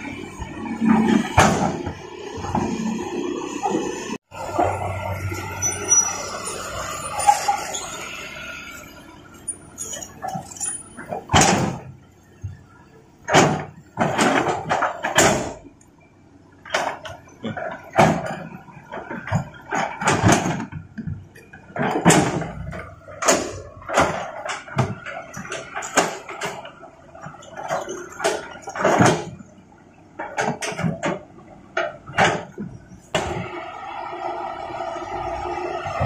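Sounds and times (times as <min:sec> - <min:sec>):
excavator engine: 0:00.0 - 0:36.0
excavator bucket clanking on stones: 0:09.4 - 0:15.8, 0:16.6 - 0:33.4.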